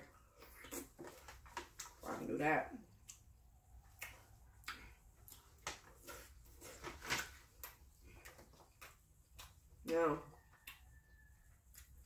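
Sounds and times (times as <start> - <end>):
wet chewing smacks: 3.0 - 6.2, 7.6 - 9.9.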